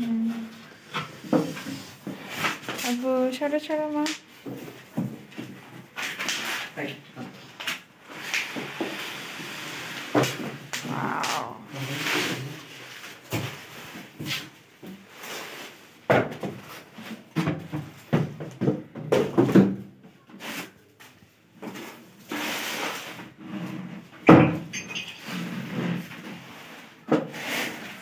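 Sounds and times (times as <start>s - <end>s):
styrofoam packaging rustling and knocking: 12.4s - 20.0s.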